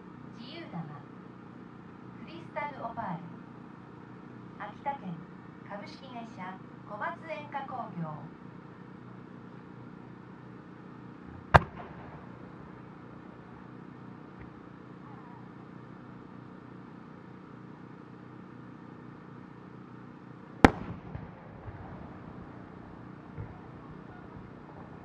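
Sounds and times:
firework shell launch bang: 11.3s - 12.9s, 20.6s - 21.8s
firework bursting overhead: 11.3s - 13.7s, 20.6s - 25.0s.

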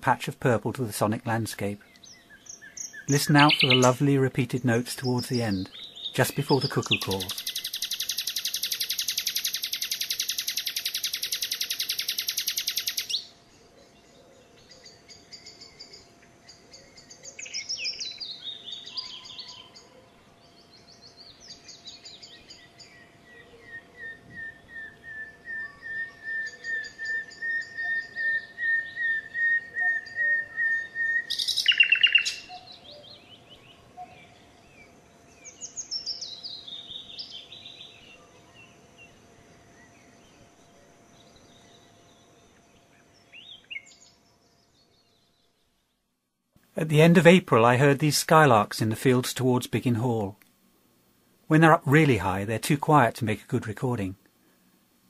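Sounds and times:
nightingale singing: 1.0s - 46.0s
willow warbler descending song: 1.9s - 13.3s, 23.7s - 32.8s.

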